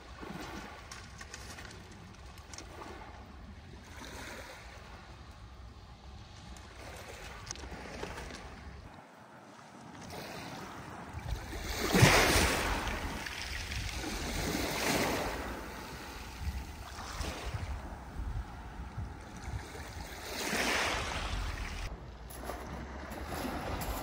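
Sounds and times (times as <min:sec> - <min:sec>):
wind buffeting microphone: 0:10.1 - 0:24.0
strong wind gusting: 0:10.5 - 0:24.0.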